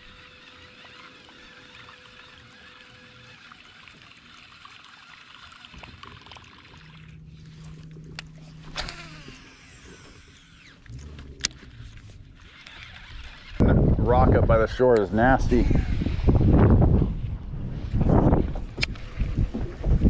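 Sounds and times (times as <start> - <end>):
water lapping against boat hull: 0.0 - 13.6, 17.8 - 20.0
low steady hum: 0.0 - 20.0.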